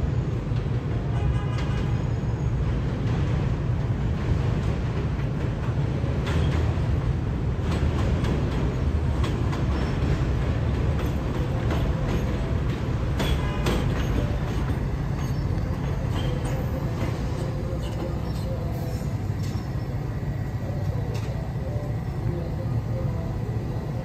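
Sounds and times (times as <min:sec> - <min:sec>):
subway train rumbling on elevated track: 0:00.0 - 0:24.0
wheel squeal: 0:15.1 - 0:16.6.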